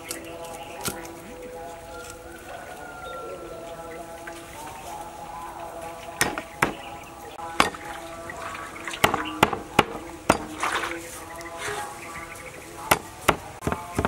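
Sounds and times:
soft background music: 0.0s - 14.0s
water splashing in metal basin: 7.5s - 11.1s.

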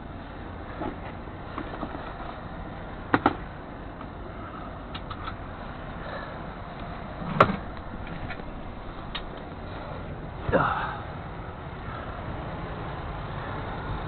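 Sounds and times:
knocks and clicks in truck cab: 3.1s - 3.4s
low rumble: 5.5s - 12.5s.

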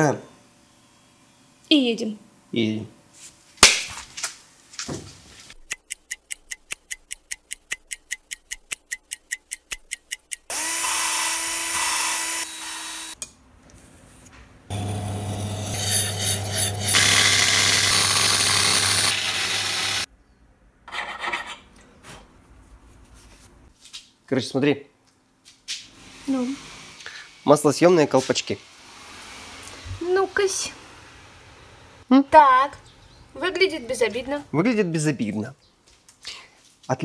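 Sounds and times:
even tool clicks: 5.6s - 10.6s
electric power tool running: 10.5s - 13.2s, 14.7s - 20.1s.

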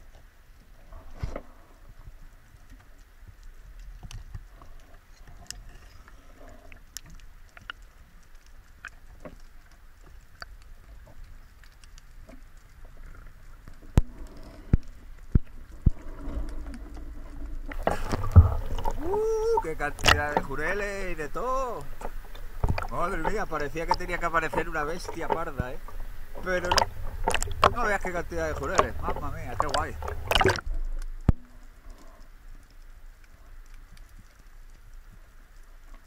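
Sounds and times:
small clicks and crackles: 0.0s - 36.0s
water noise: 0.0s - 36.0s
low underwater rumble: 10.6s - 35.9s.

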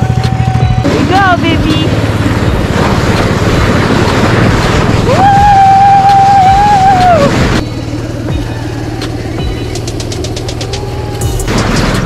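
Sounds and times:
snowmobile engine running: 0.0s - 12.0s
rushing air and snow: 2.0s - 7.7s.

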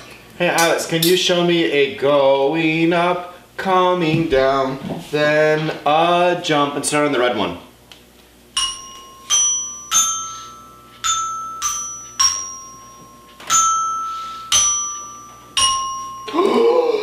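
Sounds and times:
toy xylophone notes: 8.6s - 17.0s.

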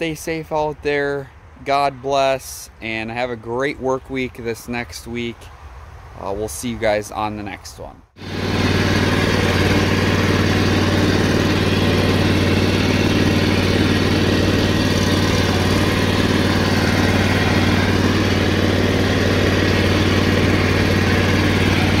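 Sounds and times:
lawn machine engine running: 8.2s - 22.0s.

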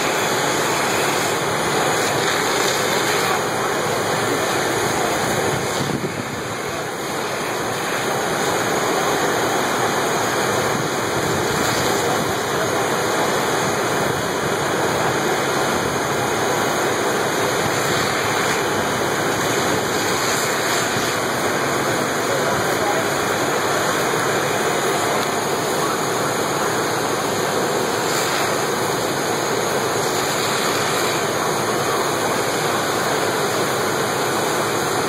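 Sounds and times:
fire hose water rushing: 0.0s - 35.0s.

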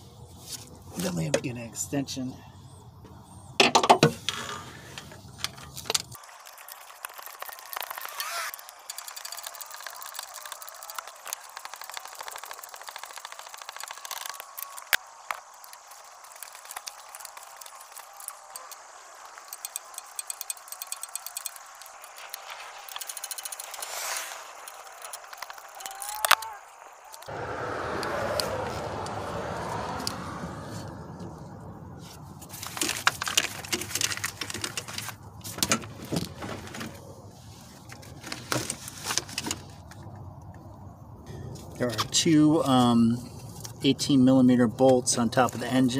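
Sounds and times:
hand ratchet clicking: 16.3s - 23.8s.

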